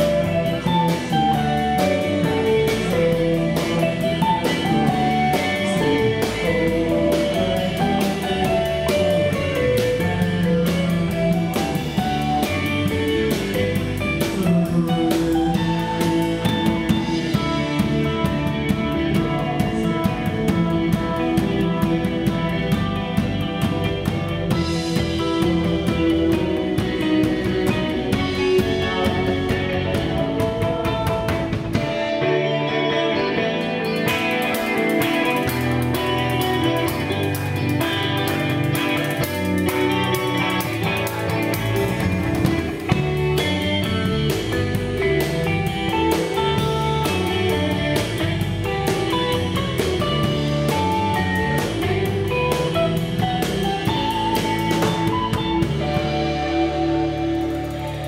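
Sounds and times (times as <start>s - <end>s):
drum kit beat: 0.0s - 58.0s
electric guitar: 0.0s - 58.0s.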